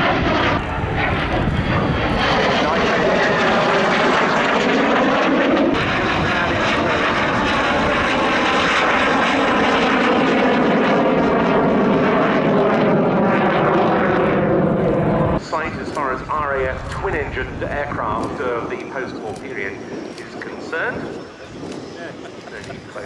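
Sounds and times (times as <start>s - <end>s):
jet engines roaring: 0.0s - 23.0s.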